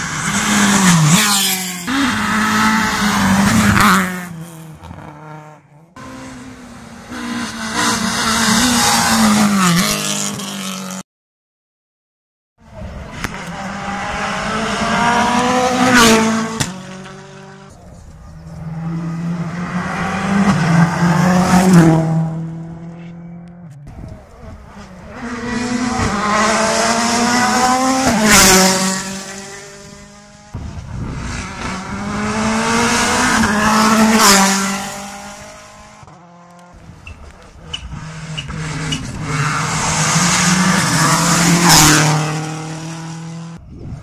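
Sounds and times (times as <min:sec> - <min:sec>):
rally cars passing at speed: 0:00.0 - 0:11.0, 0:12.6 - 0:44.0
engine revving hard: 0:31.2 - 0:36.5, 0:37.9 - 0:43.6.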